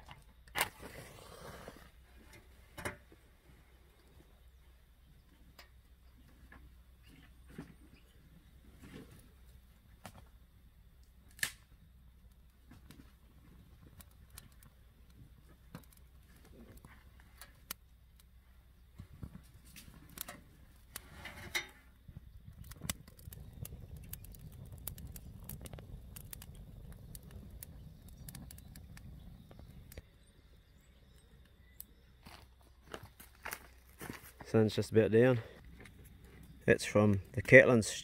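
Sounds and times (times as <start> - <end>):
soft rush of flames: 0.6 - 4.3, 11.2 - 30.8
fire crackles and pops: 8.5 - 38.0.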